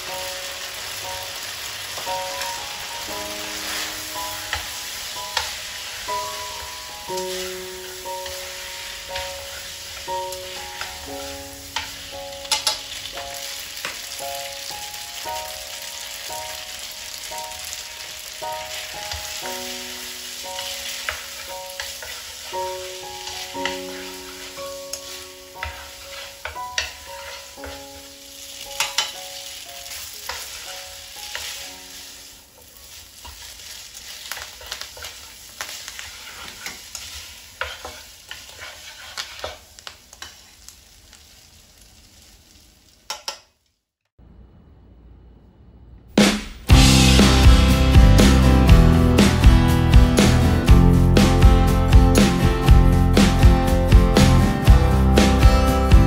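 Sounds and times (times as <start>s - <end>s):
soft background music: 0.0s - 32.7s
food sizzling in frying pan: 0.0s - 43.8s, 46.7s - 56.0s
utensil scraping pan: 20.6s - 29.2s, 29.9s - 40.6s.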